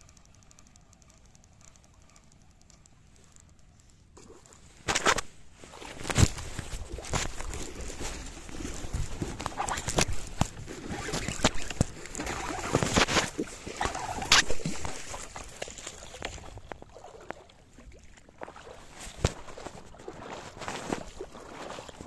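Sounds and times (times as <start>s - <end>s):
fishing reel clicks and knocks: 0.0s - 5.2s
rustling: 0.6s - 16.5s.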